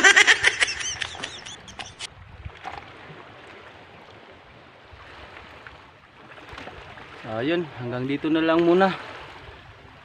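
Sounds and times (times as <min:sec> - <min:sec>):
wind on microphone: 0:00.0 - 0:07.2.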